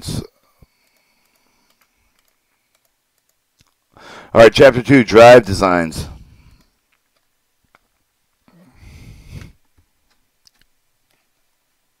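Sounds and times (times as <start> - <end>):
computer mouse clicks: 0.6 - 3.8, 9.4 - 11.5
short breathy noise: 4.0 - 4.4, 8.5 - 9.6.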